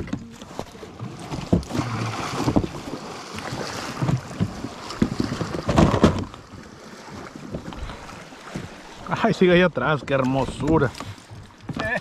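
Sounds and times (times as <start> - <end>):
knocks on plastic kayak: 3.9 - 6.4.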